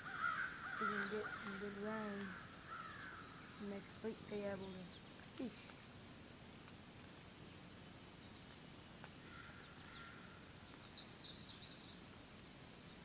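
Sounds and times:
insects droning: 0:00.0 - 0:13.0
bird chirps: 0:09.4 - 0:12.0.

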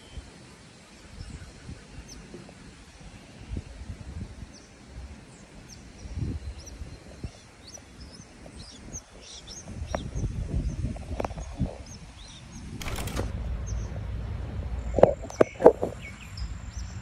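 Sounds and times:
small birds chirping: 0:04.5 - 0:14.0, 0:14.8 - 0:17.0
low uneven rumble: 0:12.8 - 0:17.0.

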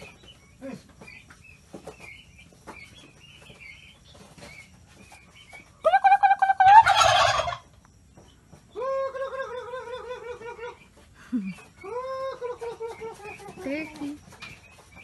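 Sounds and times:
turkey peeps: 0:00.0 - 0:15.0
turkey loud rattling call: 0:06.0 - 0:07.6.

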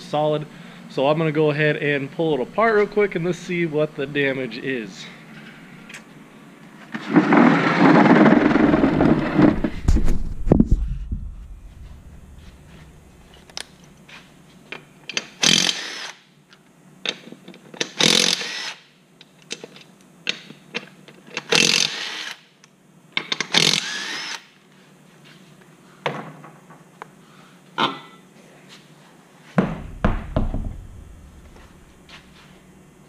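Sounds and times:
cordless power tool spinning: 0:15.4 - 0:16.2, 0:18.0 - 0:18.8, 0:21.5 - 0:22.4, 0:23.5 - 0:24.4.

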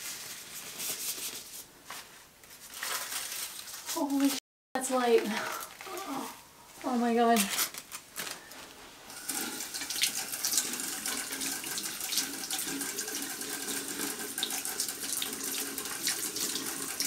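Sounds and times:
tap water running and splashing: 0:09.1 - 0:17.0.

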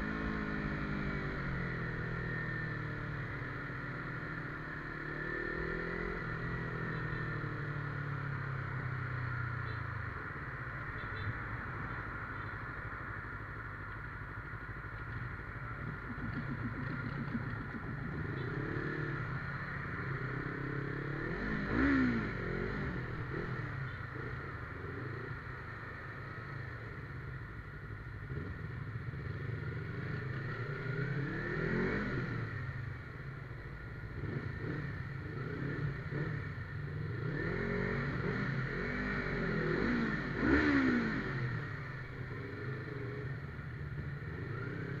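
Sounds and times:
motorcycle engine revving: 0:00.0 - 0:09.8, 0:14.6 - 0:26.8, 0:28.2 - 0:45.0.

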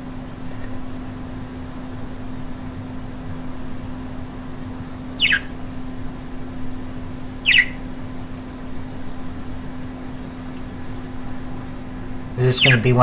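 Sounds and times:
steady low hum: 0:00.0 - 0:13.0
budgerigar chirps: 0:05.2 - 0:05.6, 0:07.4 - 0:07.8, 0:12.4 - 0:13.0.

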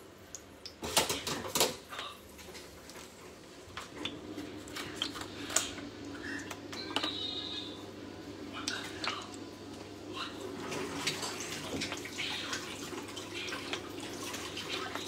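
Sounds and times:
pots and utensils clattering: 0:00.8 - 0:01.9.

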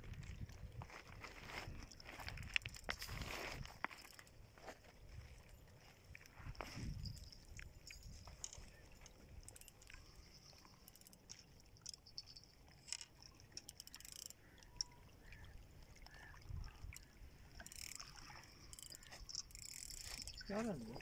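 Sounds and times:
small clicks: 0:07.2 - 0:15.4, 0:17.0 - 0:20.7.

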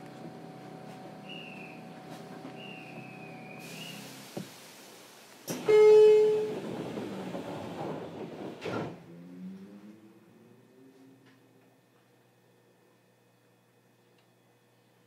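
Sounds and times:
train motor whine: 0:01.0 - 0:04.5
sliding doors shutting: 0:05.4 - 0:09.9.

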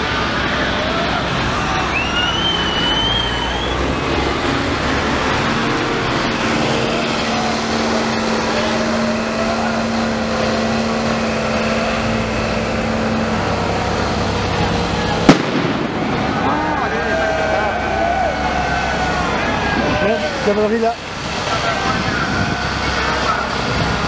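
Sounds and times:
truck engine droning: 0:00.0 - 0:24.0
sharp bang: 0:15.2 - 0:16.9.

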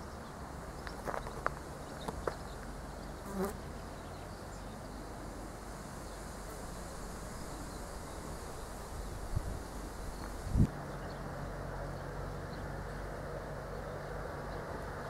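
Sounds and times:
insects buzzing: 0:00.0 - 0:11.2.

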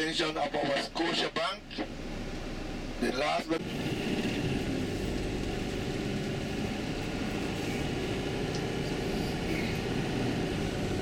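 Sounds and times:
bus engine and road noise: 0:00.0 - 0:11.0.

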